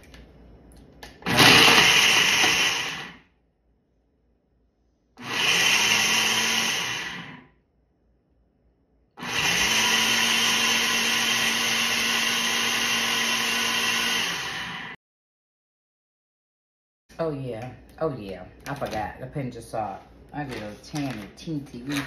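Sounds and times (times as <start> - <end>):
blender blending: 1.2 - 3.2, 5.2 - 7.5, 9.2 - 15.0.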